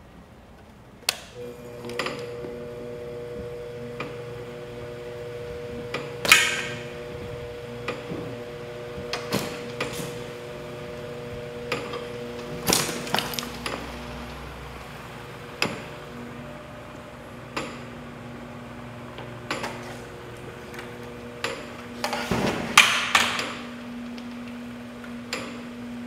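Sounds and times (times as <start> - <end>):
gear motor humming: 1.4 - 22.3.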